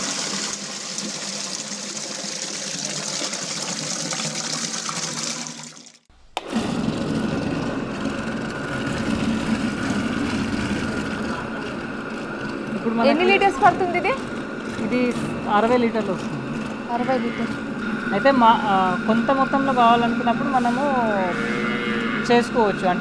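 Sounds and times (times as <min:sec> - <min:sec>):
water running in hissing stream: 0:00.0 - 0:06.1
churning machine humming: 0:00.0 - 0:23.0.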